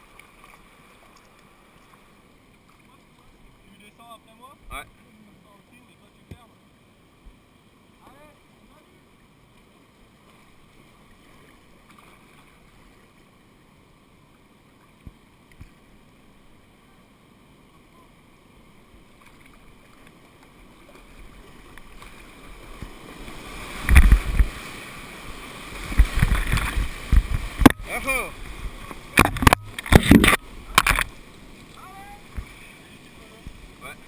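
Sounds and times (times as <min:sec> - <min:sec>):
faint knocks on a kayak: 0:06.2 - 0:06.5
water splashing over a boat: 0:19.0 - 0:34.0
whitewater rushing: 0:20.6 - 0:34.0.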